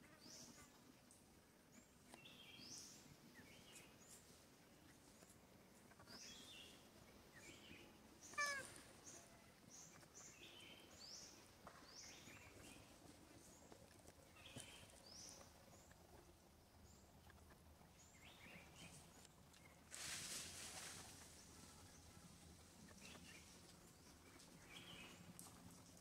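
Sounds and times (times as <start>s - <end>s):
small birds chirping: 0.1s - 26.0s
monkey squeaky call: 8.4s - 8.7s.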